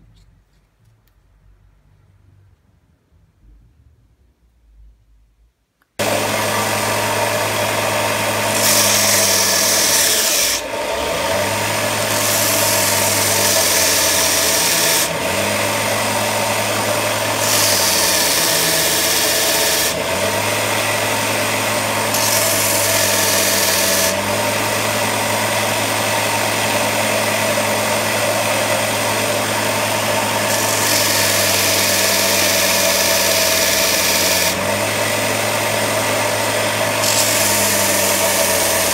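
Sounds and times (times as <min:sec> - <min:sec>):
belt sander motor hum: 0:06.0 - 0:38.9
wood rasping on sanding belt: 0:17.3 - 0:20.0.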